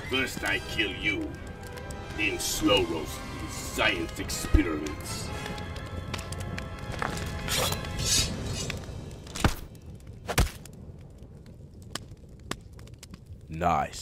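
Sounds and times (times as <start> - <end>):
background music: 0.0 - 10.2.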